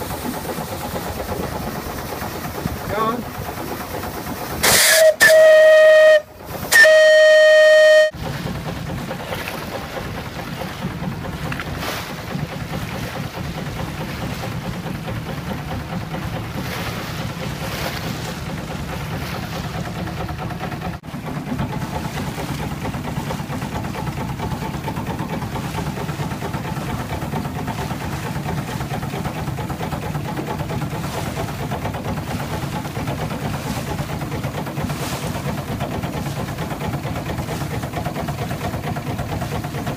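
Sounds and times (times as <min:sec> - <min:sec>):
boat rumbling on water: 0:00.0 - 0:39.9
steam whistle blast: 0:04.6 - 0:08.2.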